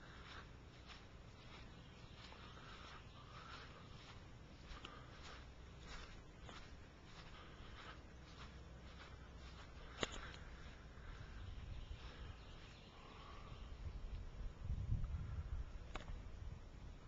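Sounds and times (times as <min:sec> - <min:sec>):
soft ticks and rustles: 0:00.0 - 0:11.4, 0:14.0 - 0:15.2
sharp click: 0:15.9 - 0:16.2.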